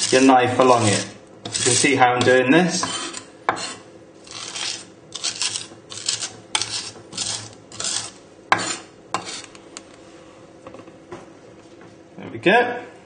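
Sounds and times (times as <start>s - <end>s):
knife scraping garlic on board: 0.0s - 9.6s.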